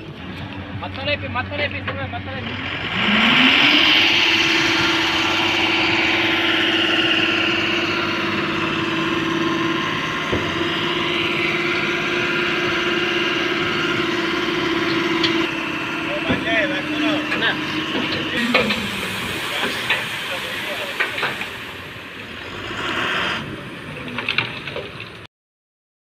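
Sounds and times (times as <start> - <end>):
diesel truck engine revving: 0.0 - 25.3.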